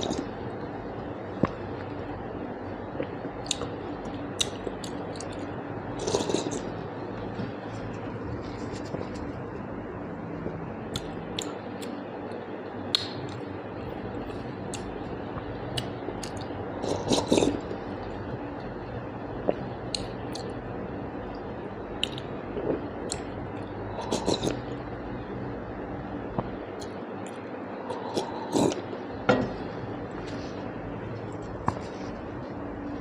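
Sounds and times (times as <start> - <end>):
chewing and wet squishing: 3.0 - 9.6, 10.9 - 12.0, 14.2 - 18.1, 19.4 - 20.6, 22.0 - 24.7.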